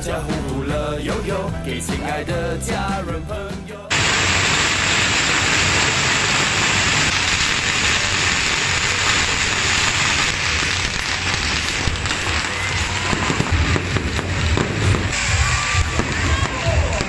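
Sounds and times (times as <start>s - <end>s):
firecrackers crackling: 3.9s - 17.0s.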